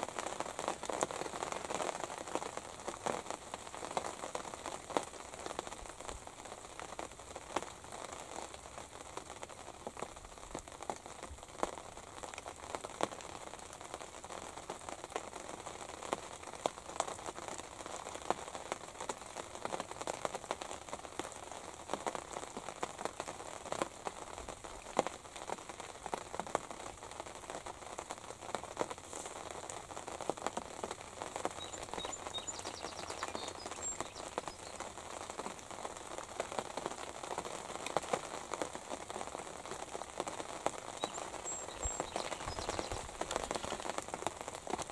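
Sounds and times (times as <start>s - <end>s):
light rain on fabric roof: 0.0s - 44.9s
faint high chirps: 31.6s - 34.8s, 41.0s - 43.8s.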